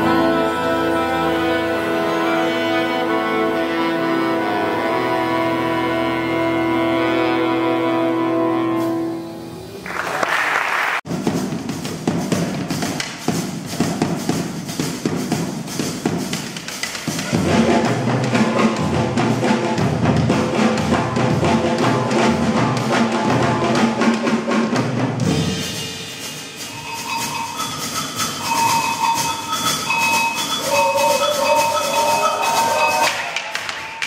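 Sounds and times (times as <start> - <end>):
big band jazz: 0.0 - 9.5, 11.1 - 33.3
horns playing: 0.0 - 9.8, 17.3 - 24.2, 26.1 - 33.8
drum kit groove with cymbals: 11.1 - 33.4.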